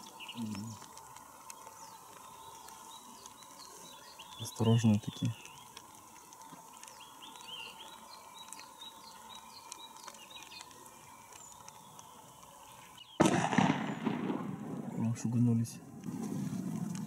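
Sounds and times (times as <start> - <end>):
faint bird chirps: 0.0 - 0.9, 1.5 - 5.8, 6.4 - 13.2
loud shotgun blast: 13.2 - 14.8.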